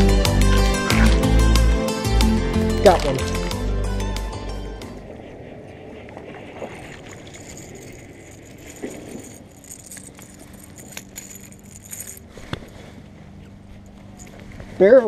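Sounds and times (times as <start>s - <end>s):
fishing rod handling rustle: 6.6s - 14.7s.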